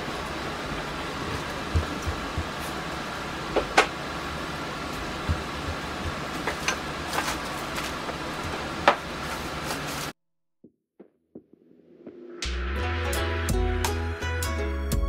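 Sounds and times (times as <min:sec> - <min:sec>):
steady background hum: 0:00.0 - 0:10.2.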